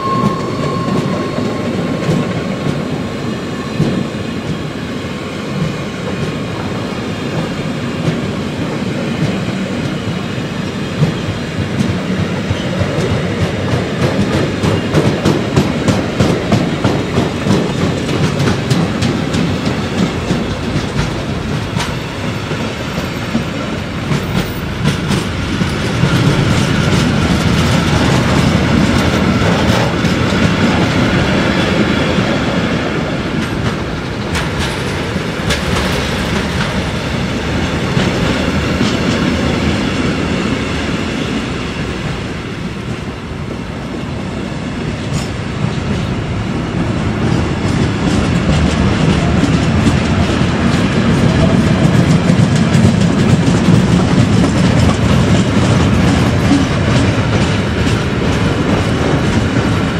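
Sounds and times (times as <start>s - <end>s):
steel wheels rumbling on rails: 0.0s - 59.9s
wheels clicking over rail joints: 11.0s - 31.3s, 33.4s - 39.8s, 46.8s - 59.9s.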